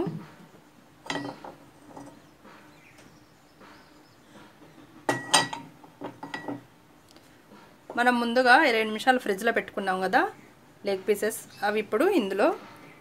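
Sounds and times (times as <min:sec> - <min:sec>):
metal kitchenware clinking: 0:01.0 - 0:02.2, 0:05.1 - 0:06.6.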